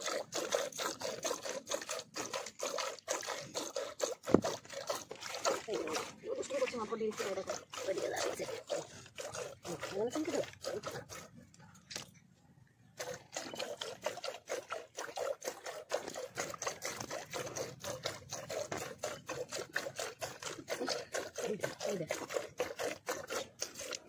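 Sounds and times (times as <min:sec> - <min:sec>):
milk squirting into metal bucket: 0:00.0 - 0:12.1, 0:12.8 - 0:24.0.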